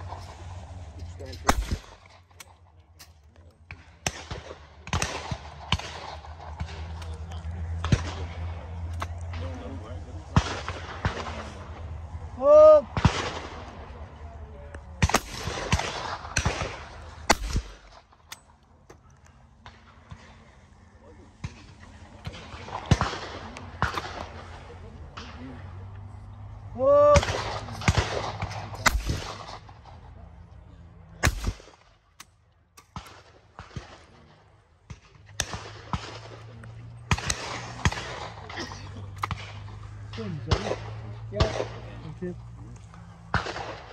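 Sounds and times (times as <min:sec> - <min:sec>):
shotgun shots: 0:01.4 - 0:02.6, 0:03.7 - 0:07.0, 0:12.9 - 0:13.8, 0:15.0 - 0:18.5, 0:21.4 - 0:24.6, 0:27.2 - 0:29.9, 0:31.2 - 0:42.0, 0:43.3 - 0:43.9.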